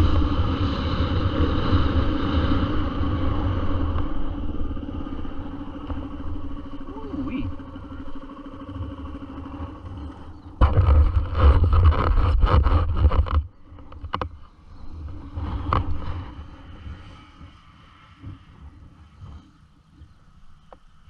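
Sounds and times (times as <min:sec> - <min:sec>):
dirt bike engine running: 0:00.0 - 0:17.1
rough scraping rumble: 0:00.0 - 0:18.6.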